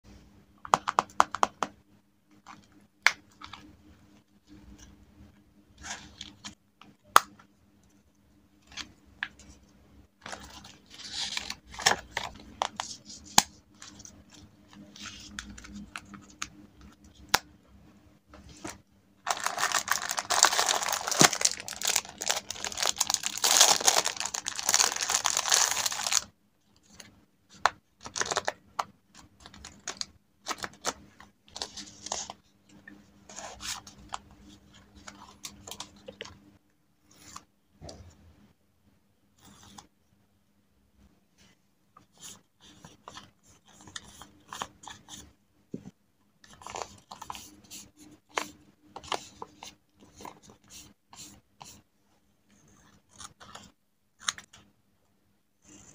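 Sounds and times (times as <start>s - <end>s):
paper being handled: 18.5s - 26.2s
plastic wrapper crinkling: 19.3s - 26.3s.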